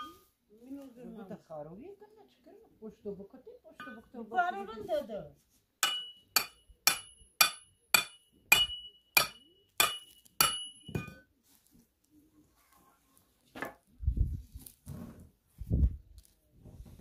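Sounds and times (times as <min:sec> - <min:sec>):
hammer striking metal: 0:05.8 - 0:11.2.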